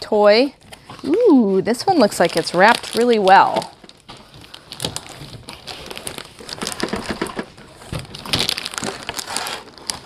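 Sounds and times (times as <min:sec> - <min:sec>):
plastic wrap crinkling: 0:00.0 - 0:10.0
cardboard scraping: 0:04.1 - 0:10.0.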